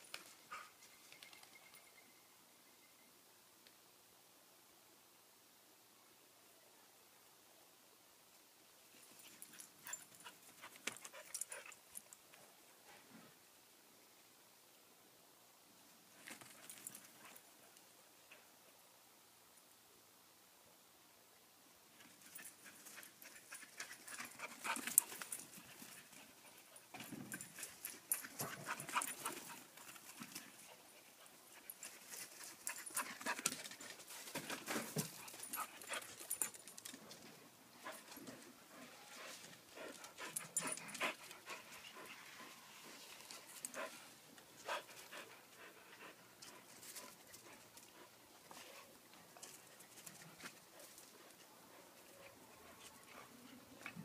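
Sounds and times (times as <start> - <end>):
dogs panting: 22.4 - 33.8, 37.8 - 48.8.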